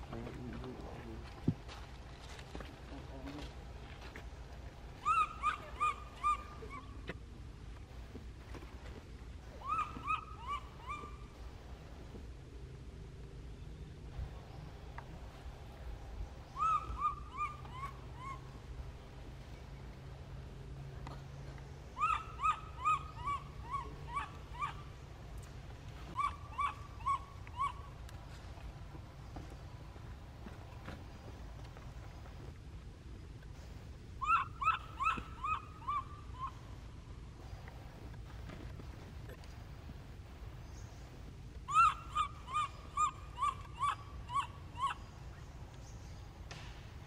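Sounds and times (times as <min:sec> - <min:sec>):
baby monkey cooing: 0:05.0 - 0:07.1, 0:09.6 - 0:11.4, 0:16.5 - 0:18.6, 0:22.0 - 0:24.9, 0:26.1 - 0:28.0, 0:34.2 - 0:36.6, 0:41.7 - 0:45.2.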